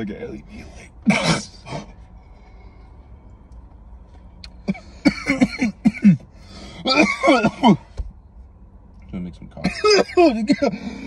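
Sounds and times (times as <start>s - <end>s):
man coughing: 1.0s - 1.9s, 4.6s - 6.2s, 6.8s - 7.9s, 9.6s - 11.0s.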